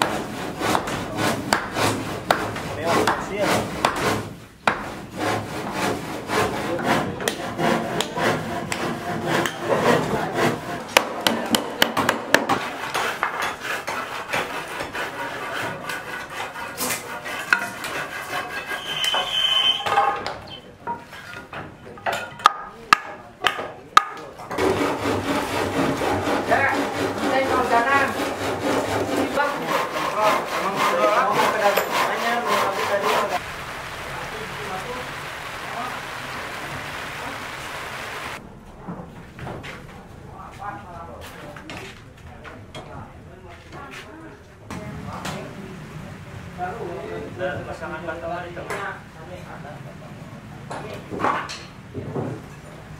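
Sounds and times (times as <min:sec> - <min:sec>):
sharp knocks: 0:00.0 - 0:04.9
hand saws cutting wood: 0:00.0 - 0:19.8, 0:24.5 - 0:33.4.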